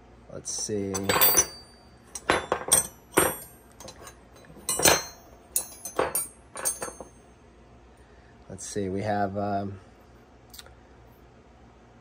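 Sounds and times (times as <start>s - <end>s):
metal wrenches clinking: 0.5s - 7.2s.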